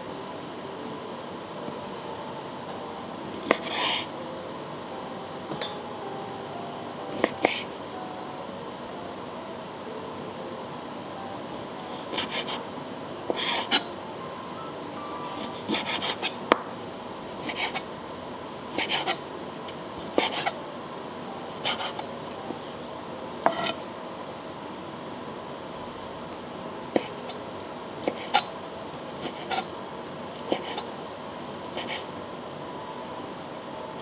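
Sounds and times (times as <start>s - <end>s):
knife slicing octopus: 18.7s - 19.2s.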